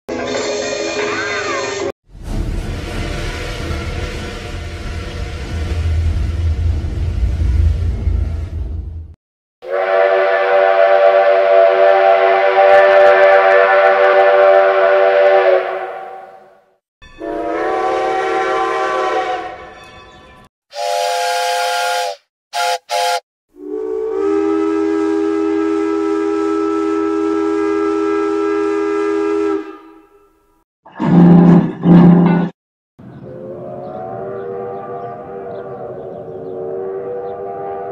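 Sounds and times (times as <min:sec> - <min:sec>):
steam locomotive whistle blasts: 0:09.6 - 0:16.5, 0:17.2 - 0:19.8, 0:20.7 - 0:30.4, 0:33.6 - 0:37.9.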